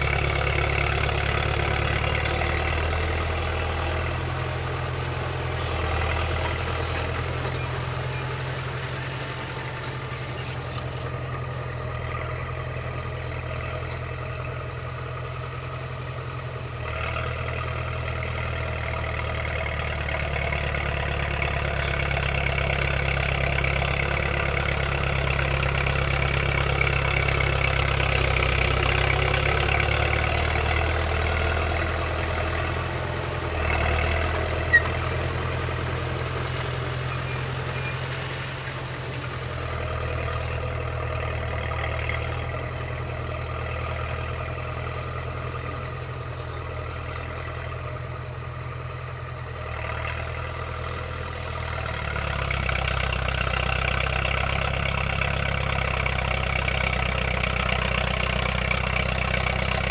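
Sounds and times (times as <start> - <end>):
dozer diesel engine: 0.0 - 59.9.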